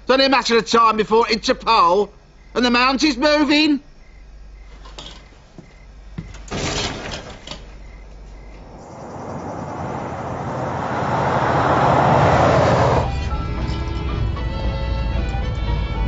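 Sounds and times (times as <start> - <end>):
road vehicle approaching: 8.2 - 16.0.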